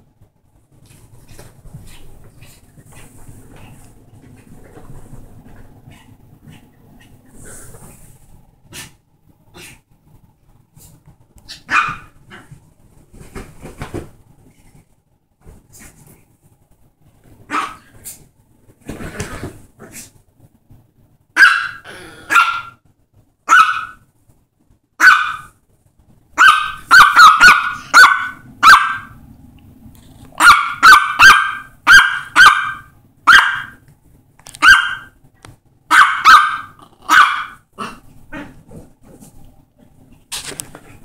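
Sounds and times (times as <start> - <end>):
small dog yapping: 11.5 - 12.5, 21.4 - 22.8, 23.5 - 24.0, 25.0 - 25.5, 26.4 - 29.2, 30.4 - 33.8, 34.6 - 35.2, 35.9 - 38.6.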